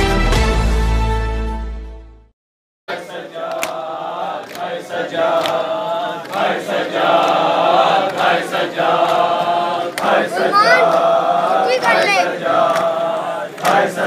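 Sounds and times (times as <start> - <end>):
crowd of men chanting: 2.9 - 14.0
chest-beating slaps: 3.4 - 4.7.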